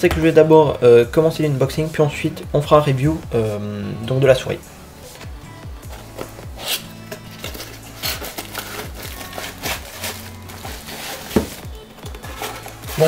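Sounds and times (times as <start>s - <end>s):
cardboard scraping and rustling: 5.9s - 13.0s.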